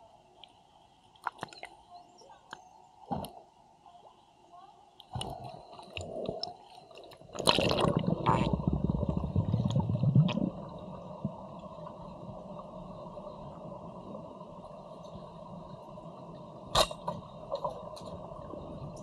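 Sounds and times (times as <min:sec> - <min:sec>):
underwater background noise: 0:00.0 - 0:19.0
water splashing underwater: 0:05.1 - 0:11.4.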